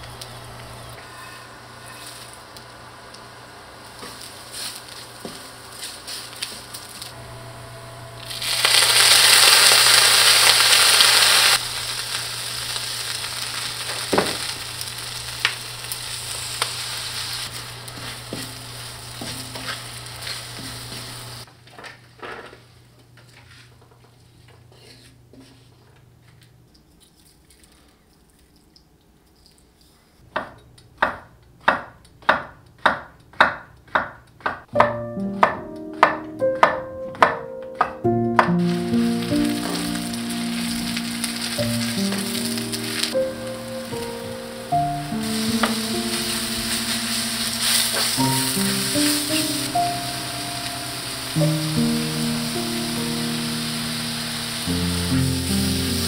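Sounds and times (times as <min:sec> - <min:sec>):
food sizzling in a pan: 0:00.0 - 0:21.5, 0:38.5 - 0:56.0
low hum: 0:07.0 - 0:09.0.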